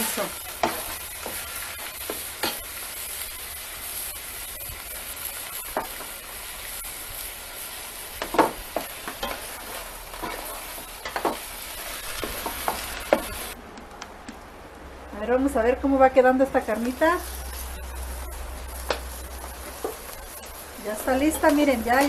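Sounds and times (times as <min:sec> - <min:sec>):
meat sizzling in a pot: 0:00.0 - 0:13.6, 0:16.0 - 0:22.0.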